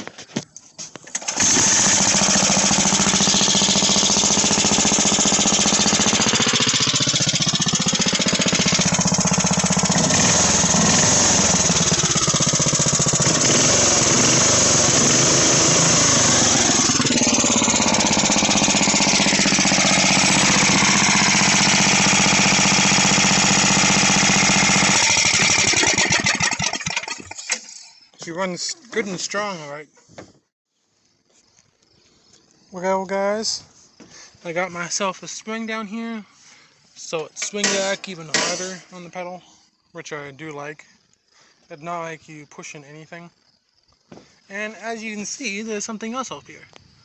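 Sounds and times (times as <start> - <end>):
single-cylinder engine running: 1.1 - 27.4.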